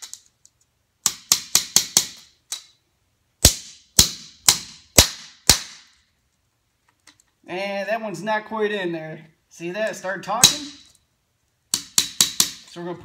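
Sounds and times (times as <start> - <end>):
hammer striking nail into metal strip: 1.0 - 2.7, 3.4 - 5.9, 10.4 - 10.9, 11.7 - 12.7.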